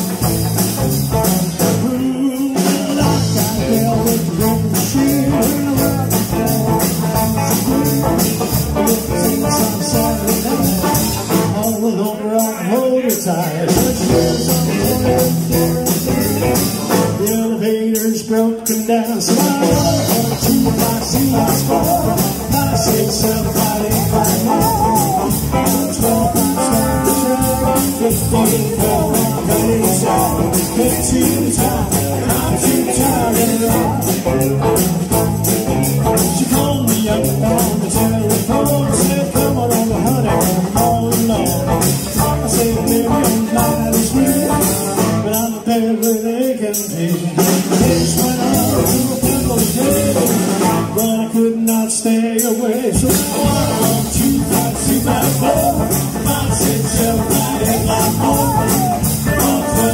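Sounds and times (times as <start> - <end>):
live rock band playing: 0.0 - 59.9
person singing: 1.0 - 59.9.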